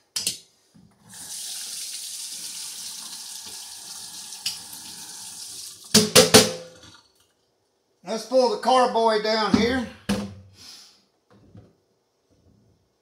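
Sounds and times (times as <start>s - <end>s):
faucet water splashing into sink: 1.1s - 6.2s.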